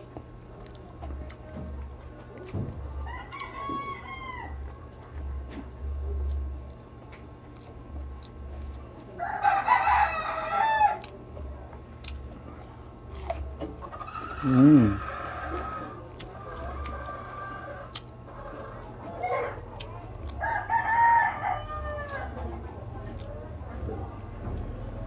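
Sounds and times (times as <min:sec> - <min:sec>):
rooster crowing: 0:03.0 - 0:04.6, 0:09.2 - 0:11.1, 0:20.4 - 0:22.4.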